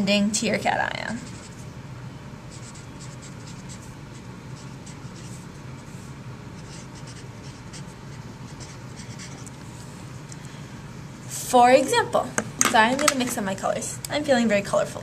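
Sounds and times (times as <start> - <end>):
low background hum: 0.0 - 15.0
marker scratching on poster board: 2.5 - 6.0, 6.6 - 9.6.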